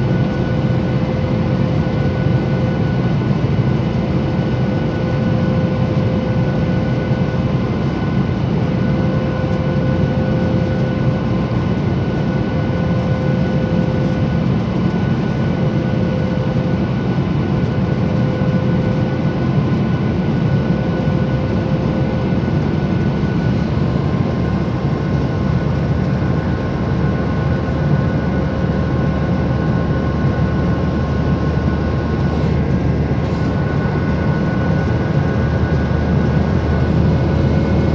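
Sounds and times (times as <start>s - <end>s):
airliner cabin engine roar: 0.0s - 37.9s.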